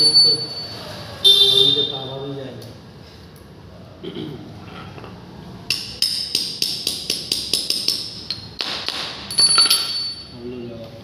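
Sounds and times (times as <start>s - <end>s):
steel tool tapping metal fittings: 5.7s - 8.5s.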